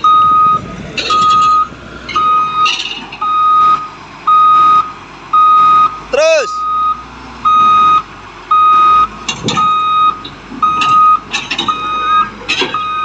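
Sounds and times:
backup alarm beeping: 0.0s - 13.0s
diesel engine: 0.0s - 13.0s
metallic clanks of steel tracks: 0.8s - 3.4s, 9.2s - 13.0s.

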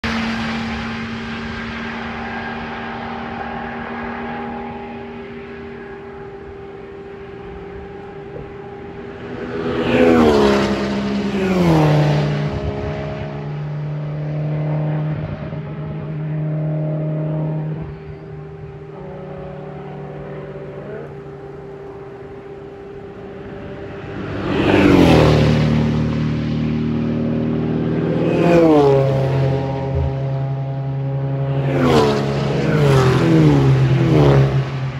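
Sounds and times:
race cars passing by: 0.0s - 34.9s.

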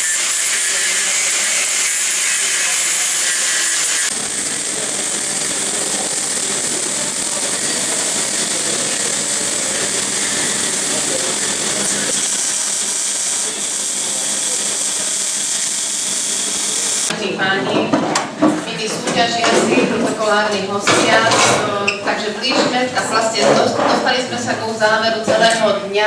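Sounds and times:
angle grinder grinding pipe: 0.0s - 17.1s
welding hiss and crackle: 0.0s - 17.1s.

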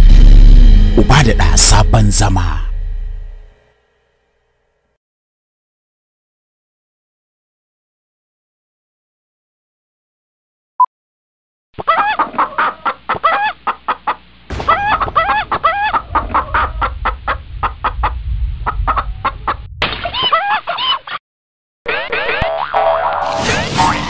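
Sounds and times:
low rumble: 0.0s - 3.6s, 14.5s - 19.8s
hen clucking rapidly: 11.8s - 21.2s.

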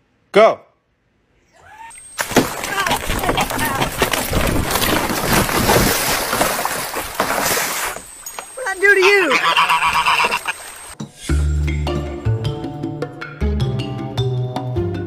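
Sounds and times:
water splashing: 2.0s - 11.0s
wings beating: 2.0s - 11.0s
goose honking: 8.8s - 10.8s.

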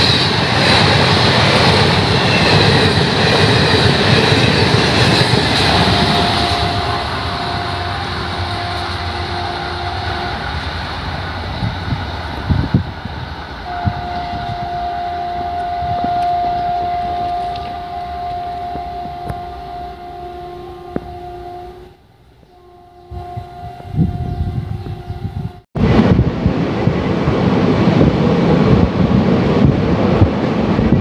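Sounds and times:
train rumbling on rails: 0.0s - 31.0s
sustained high tone: 5.5s - 11.1s, 13.6s - 25.6s.

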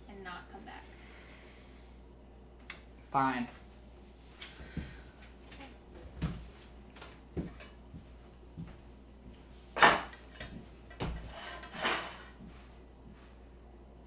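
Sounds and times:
dishes and cutlery clinking: 7.4s - 7.8s.

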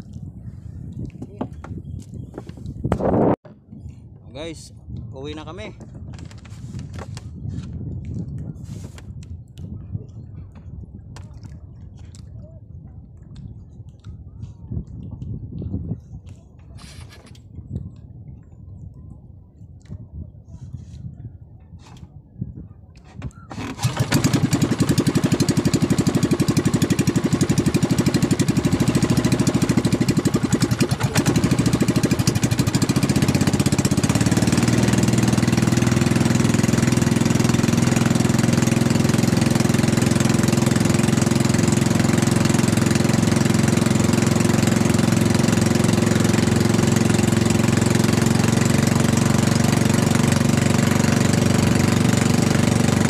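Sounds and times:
boat engine chugging: 23.0s - 53.0s.

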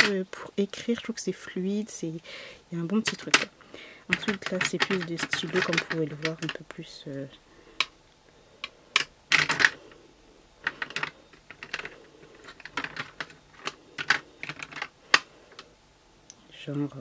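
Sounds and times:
pens clicking and clattering: 0.0s - 0.2s, 2.9s - 7.2s, 8.6s - 9.9s, 10.6s - 15.7s.

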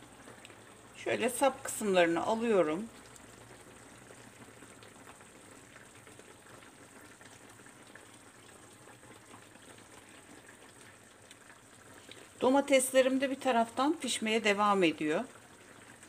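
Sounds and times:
tomatoes simmering in oil: 0.0s - 16.0s.

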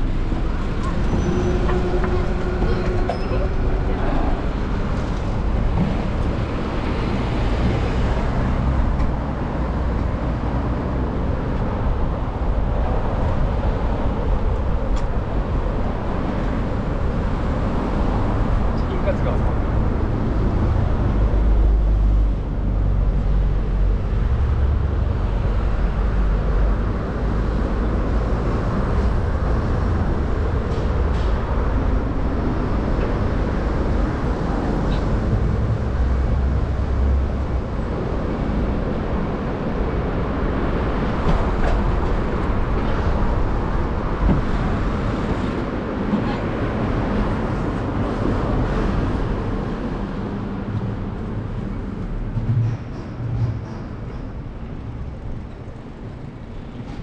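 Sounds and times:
passing vehicles: 0.0s - 57.0s.

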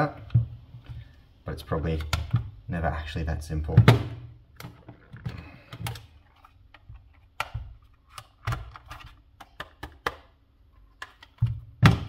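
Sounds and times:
plastic case clicking and knocking: 6.8s - 10.3s.

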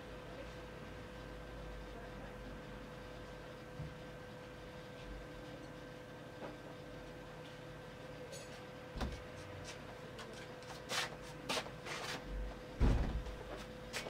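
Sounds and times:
loud thump: 12.8s - 13.3s.

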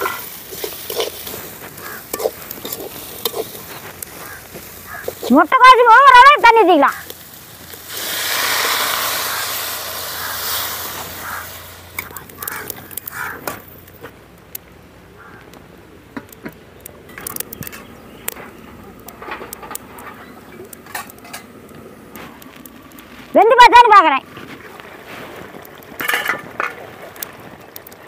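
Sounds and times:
metal ladle scraping a pot: 0.0s - 5.3s
water pouring into a pot: 7.1s - 12.5s.

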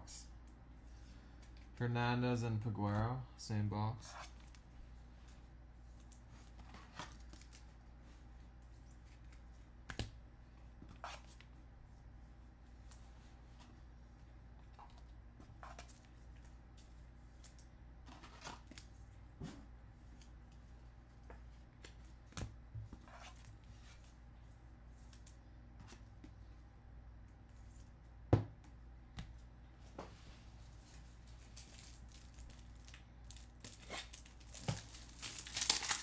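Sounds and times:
cards clicking and rustling: 31.4s - 36.0s.

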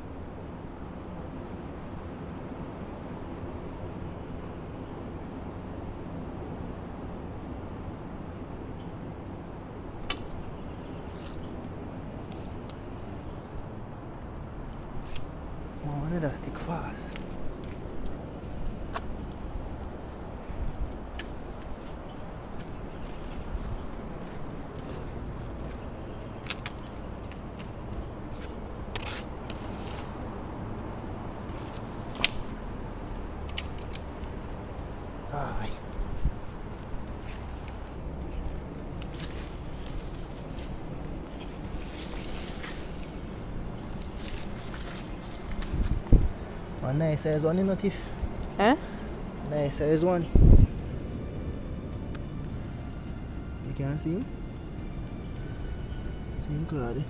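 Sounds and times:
steady low rumble: 8.4s - 56.9s
low rumble: 48.1s - 56.5s.

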